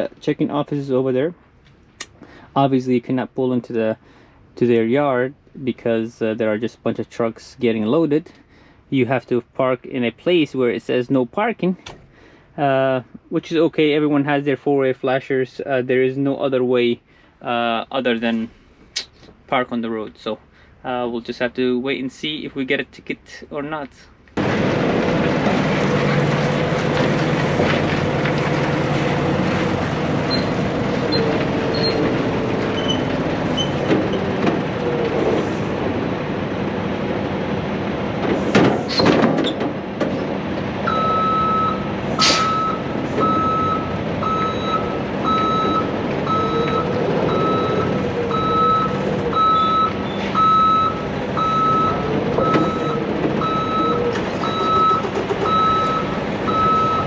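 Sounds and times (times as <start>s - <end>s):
truck diesel engine running: 24.4s - 39.0s, 39.6s - 57.0s
reversing alarm beeping: 40.9s - 57.0s
air hisses: 42.2s - 42.6s.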